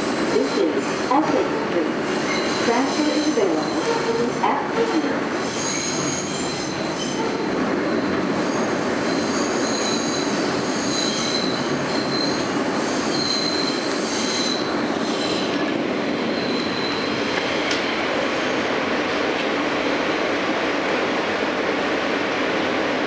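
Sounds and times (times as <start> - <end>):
subway car rumbling on rails: 0.0 - 23.0
high-pitched wheel squeal: 5.5 - 15.5, 16.3 - 17.1.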